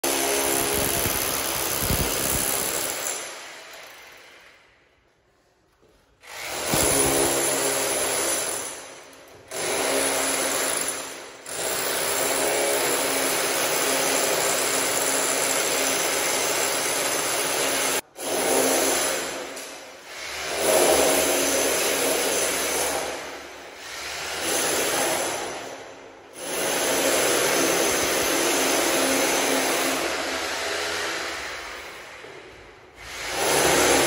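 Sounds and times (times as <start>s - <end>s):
power tool cutting brick: 0.0s - 3.3s, 6.3s - 8.6s.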